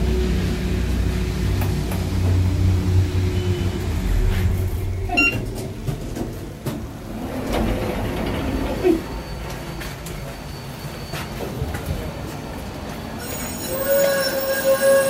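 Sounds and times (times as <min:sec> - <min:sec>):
elevator hum: 0:02.0 - 0:10.8
elevator doors opening: 0:03.2 - 0:12.1
short electronic beep: 0:05.1 - 0:05.4.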